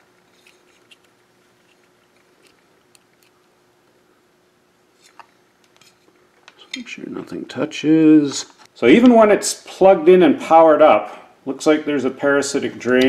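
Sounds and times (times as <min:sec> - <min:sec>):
faint steady hum: 0:00.0 - 0:13.0
small clicks and rustles of wires: 0:00.2 - 0:03.5.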